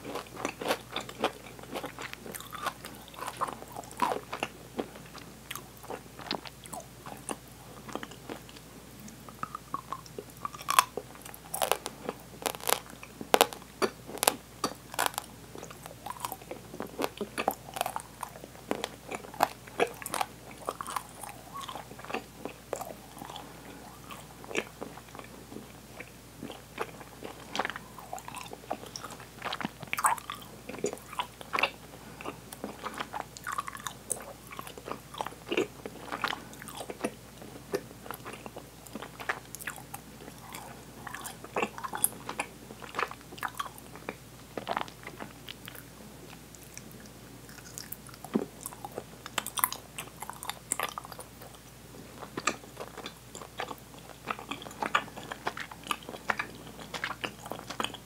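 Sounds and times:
open-mouthed chewing: 0:00.0 - 0:58.0.

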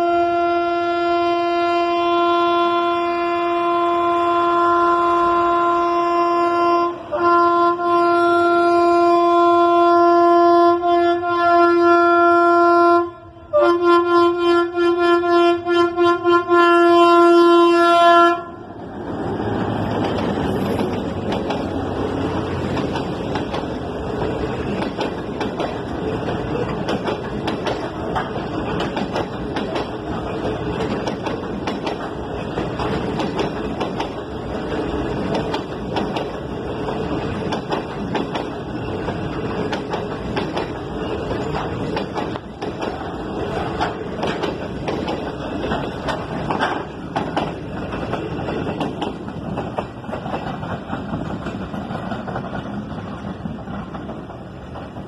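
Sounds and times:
locomotive horn blasts: 0:00.0 - 0:18.6
train rushing past: 0:00.0 - 0:55.0
wheels clattering on rails: 0:19.0 - 0:55.0.

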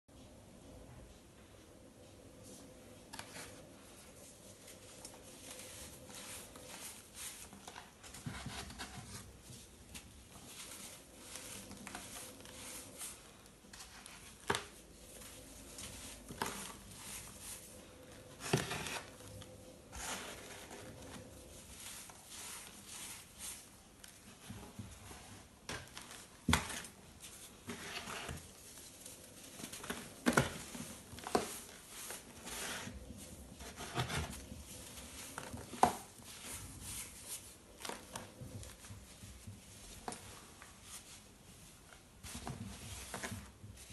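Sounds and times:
baking soda crunching and crumbling: 0:10.4 - 0:24.0.

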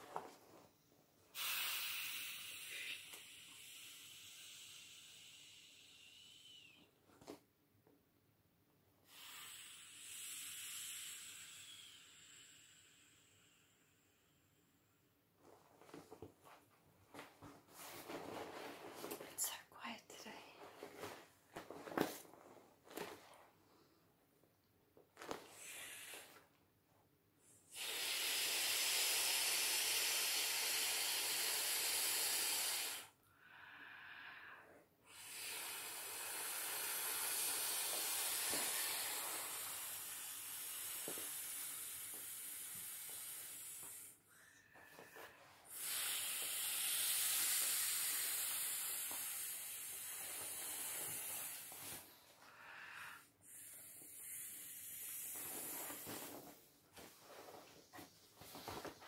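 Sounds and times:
breath blown into valve: 0:01.3 - 0:06.8, 0:09.0 - 0:14.7, 0:25.6 - 0:26.4, 0:27.4 - 0:56.4
person drawing breath: 0:27.6 - 0:59.0.

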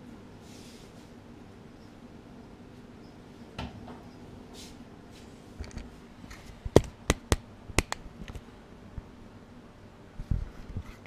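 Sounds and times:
sharp clicks and knocks: 0:06.7 - 0:08.4.

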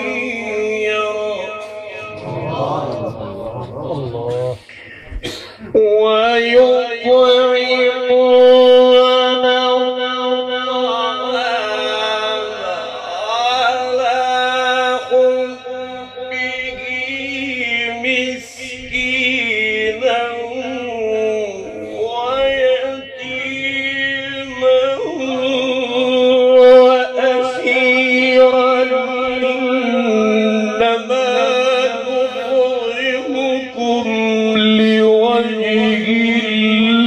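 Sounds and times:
man reciting melodically over loudspeaker: 0:00.0 - 0:37.0.

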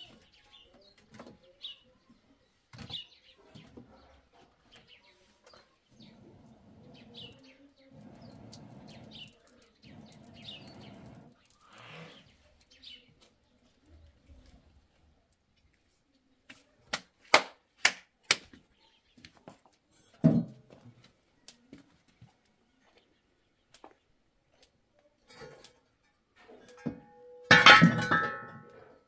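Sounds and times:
birds chirping: 0:00.0 - 0:14.5
person blowing on embers: 0:07.9 - 0:12.3
wooden sticks knocking: 0:26.7 - 0:28.7.

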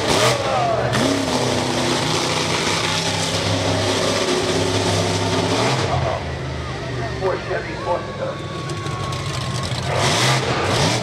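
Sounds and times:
monster truck engine running: 0:00.0 - 0:11.0.

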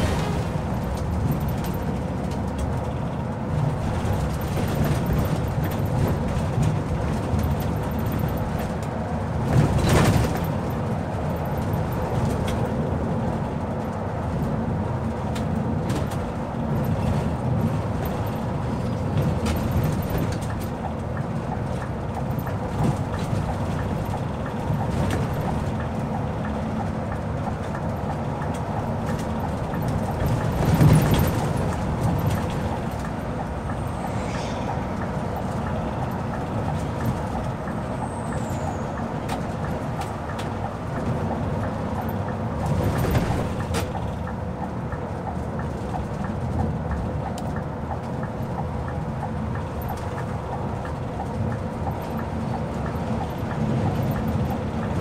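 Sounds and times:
bus engine and road rumble: 0:00.0 - 0:55.0
brief rush of air: 0:33.4 - 0:36.8.

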